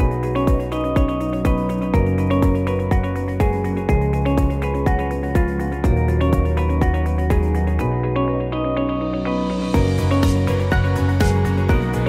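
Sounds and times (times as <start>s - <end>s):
electronic music: 0.0s - 12.0s.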